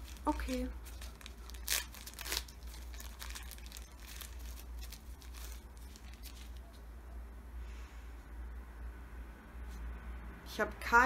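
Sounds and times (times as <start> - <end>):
wrapper crinkling and tearing: 0.0 - 6.8.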